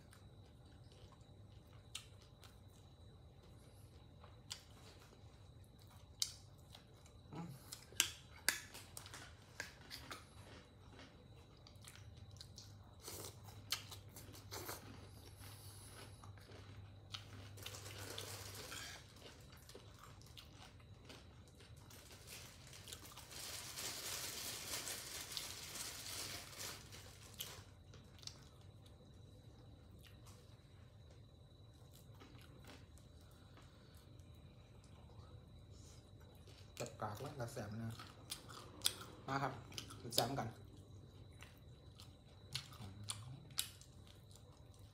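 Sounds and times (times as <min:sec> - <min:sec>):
chewing and crunching crispy food: 0:00.0 - 0:44.9.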